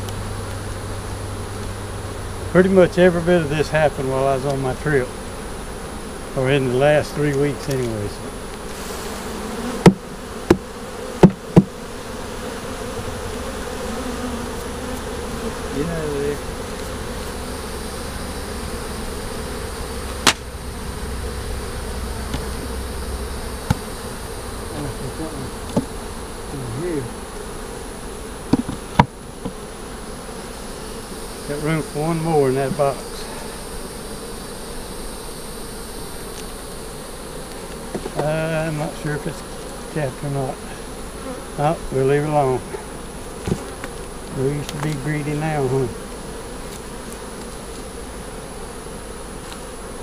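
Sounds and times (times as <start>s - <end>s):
honeybees buzzing: 0.0s - 50.0s
knocks on wooden hive box: 9.7s - 11.8s, 20.1s - 20.6s, 22.2s - 22.7s, 23.6s - 23.9s, 25.6s - 26.0s, 28.4s - 29.6s, 37.9s - 38.4s, 43.4s - 44.0s.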